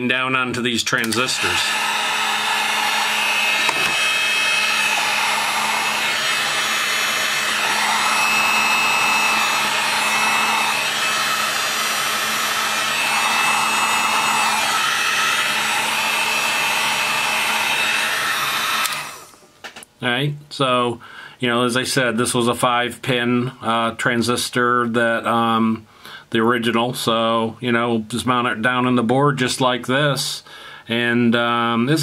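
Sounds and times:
heat gun blowing hot air: 1.0s - 19.5s.

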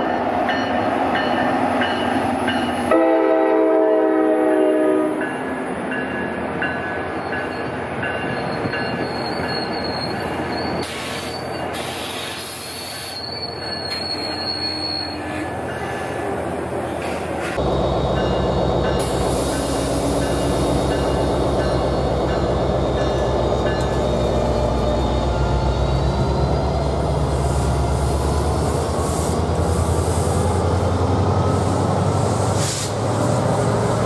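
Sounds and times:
train wheels squealing: 7.0s - 28.4s
diesel locomotive throbbing: 17.6s - 34.0s.

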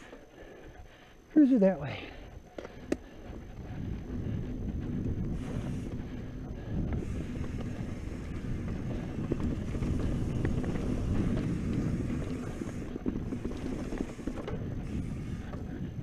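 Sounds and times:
bike rattling over bumps: 2.0s - 16.0s
wind buffeting microphone: 2.2s - 16.0s
tyres rolling over dirt: 5.0s - 16.0s.

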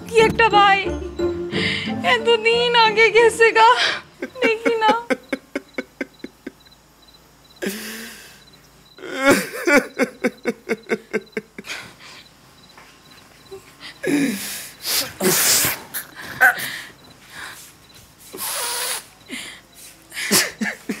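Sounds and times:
man sobbing: 3.7s - 6.6s, 7.6s - 8.2s, 9.0s - 12.2s, 13.5s - 16.8s, 19.3s - 21.0s.

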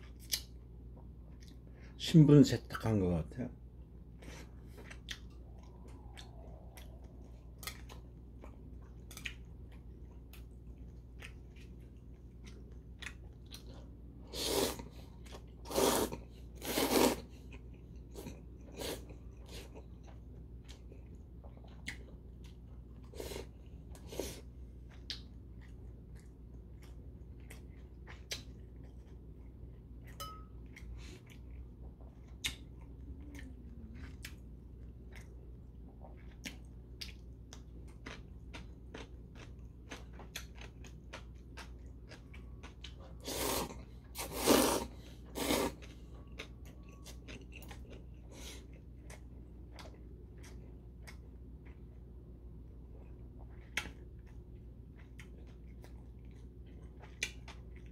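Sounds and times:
man chewing and lip-smacking: 0.0s - 1.7s, 3.9s - 57.9s
loud noodle slurps: 14.3s - 14.8s, 15.6s - 17.3s, 43.2s - 45.8s.

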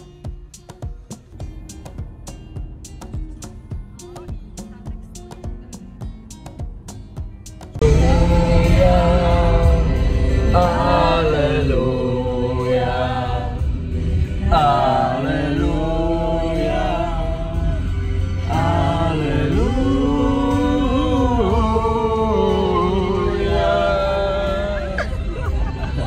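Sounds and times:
car low rumble: 0.0s - 26.0s
voices singing together: 7.8s - 26.0s.

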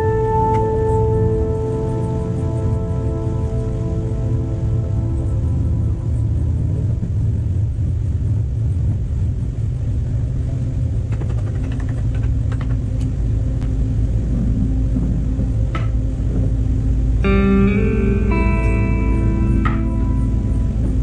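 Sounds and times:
machine rumbling: 0.0s - 21.0s
light rattling clicks: 11.0s - 13.2s.

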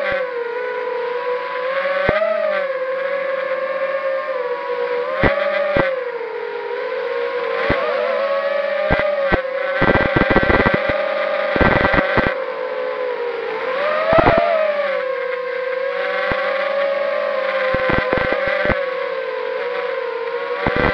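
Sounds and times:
quadcopter motors whining: 2.0s - 20.9s
sharp crackling clicks: 8.8s - 12.4s, 14.1s - 14.4s, 17.5s - 18.8s, 20.6s - 20.9s.

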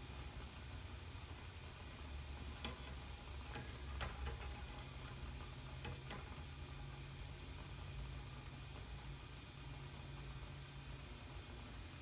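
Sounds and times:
faint fizzing hiss: 0.0s - 12.0s
steady low hum: 0.0s - 12.0s
metal spacers clicking in strainer: 2.6s - 6.4s.

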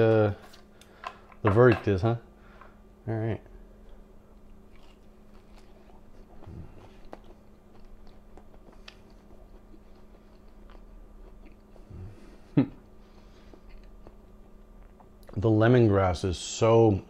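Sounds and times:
man chewing: 3.8s - 15.4s.

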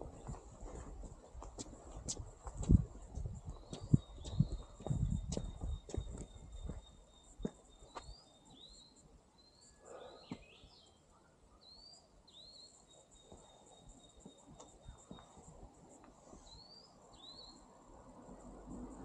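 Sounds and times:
small bird chirping: 3.0s - 15.7s, 16.4s - 17.8s.

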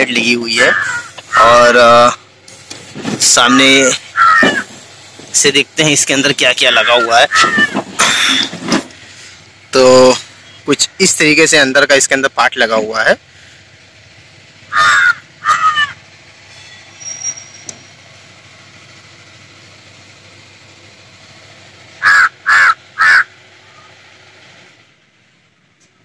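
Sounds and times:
faint steady background hum: 0.0s - 26.0s
bird calling loudly: 0.5s - 1.8s, 3.8s - 4.7s, 6.3s - 7.9s, 14.6s - 16.0s, 21.9s - 24.0s.

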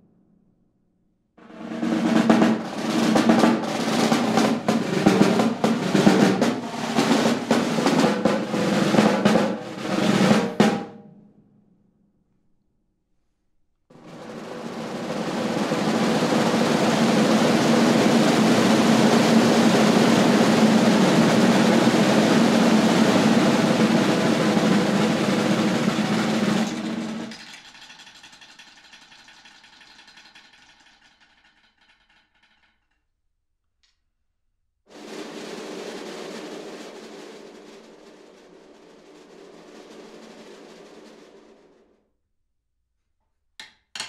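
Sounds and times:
snare drum roll: 1.4s - 11.0s, 13.9s - 31.2s, 34.9s - 42.0s.

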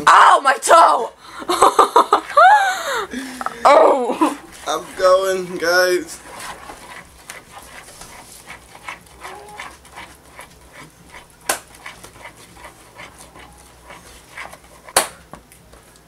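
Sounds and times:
spoon stirring batter in bowl: 3.5s - 15.1s.

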